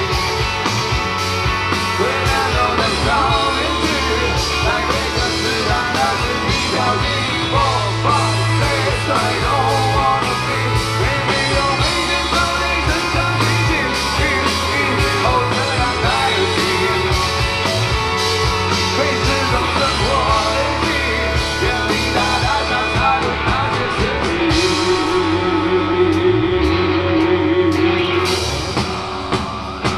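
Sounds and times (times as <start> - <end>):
live rock band playing: 0.0 - 29.9
person singing: 1.8 - 17.8, 18.7 - 28.6.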